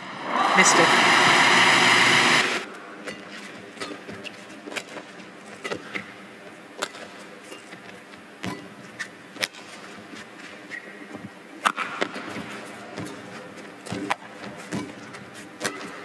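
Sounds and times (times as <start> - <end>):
arena hum: 0.0 - 2.7.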